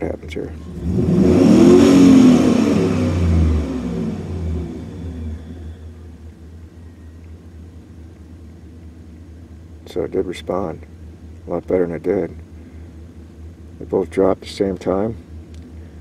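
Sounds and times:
truck engine revving: 0.5s - 6.4s.

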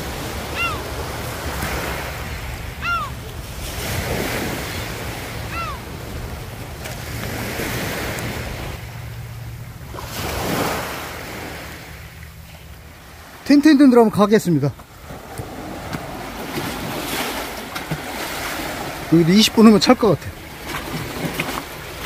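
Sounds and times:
small waves on pebble beach: 0.0s - 9.0s, 9.9s - 12.1s, 14.8s - 22.0s
short high rising falling calls: 2.8s - 3.2s, 5.5s - 5.9s.

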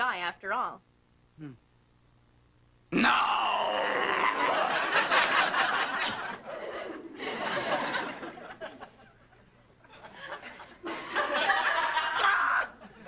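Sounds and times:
audience laughter: 4.3s - 13.0s.

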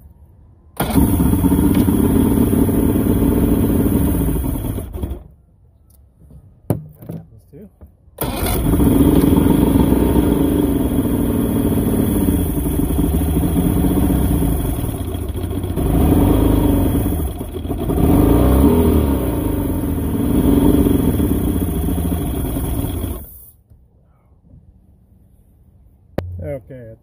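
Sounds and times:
outboard motor revving: 0.8s - 5.3s, 8.2s - 23.4s.

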